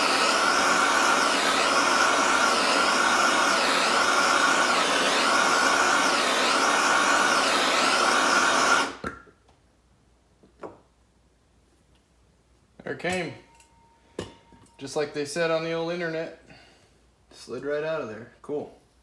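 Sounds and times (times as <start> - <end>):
blow torch flame hissing: 0.0 - 9.0.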